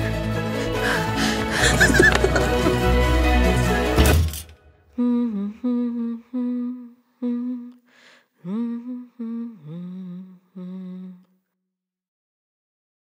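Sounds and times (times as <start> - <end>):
person humming a slow tune: 4.9 - 7.8, 8.4 - 11.4
breath: 7.8 - 8.5.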